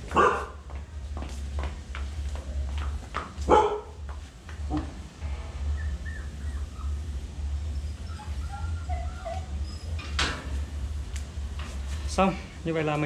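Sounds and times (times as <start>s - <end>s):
steady low hum: 0.0s - 13.0s
puppy whining: 5.6s - 10.2s
puppy crying out: 5.7s - 10.1s.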